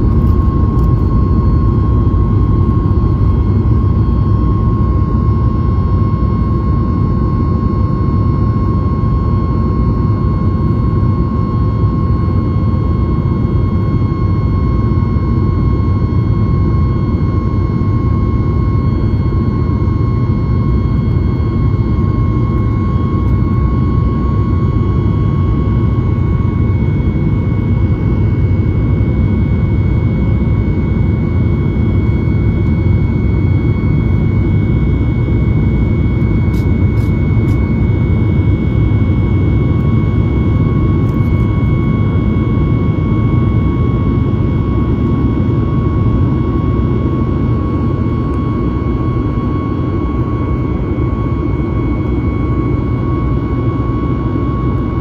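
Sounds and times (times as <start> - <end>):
high engine whines: 0.0 - 55.0
jet engine rumble: 0.0 - 55.0.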